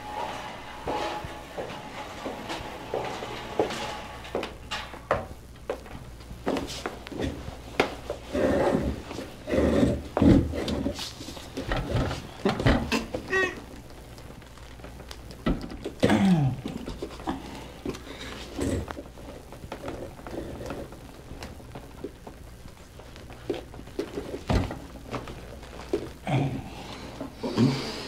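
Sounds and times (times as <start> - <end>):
shuffling: 0.0 - 28.0
steady low hum: 0.0 - 28.0
knocks and thumps: 9.8 - 13.3, 23.5 - 26.2.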